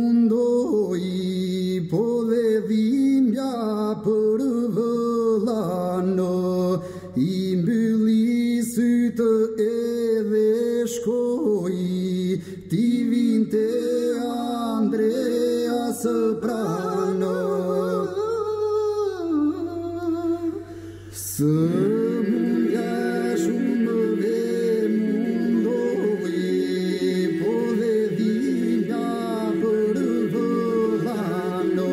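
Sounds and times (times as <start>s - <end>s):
men singing unaccompanied: 11.5s - 20.4s, 21.3s - 31.9s.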